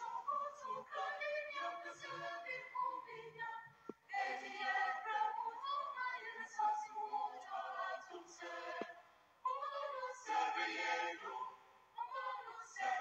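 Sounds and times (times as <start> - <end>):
voices singing choir-like song: 0.0 - 13.0
click: 8.8 - 9.0.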